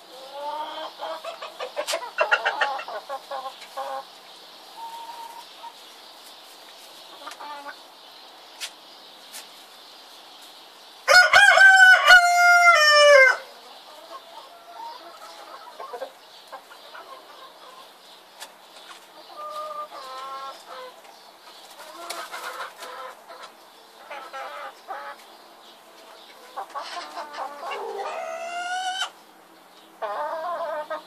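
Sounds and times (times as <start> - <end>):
soft chicken calls: 0.0 - 7.9, 8.6 - 29.2, 30.0 - 31.0
rooster crowing: 11.1 - 13.5.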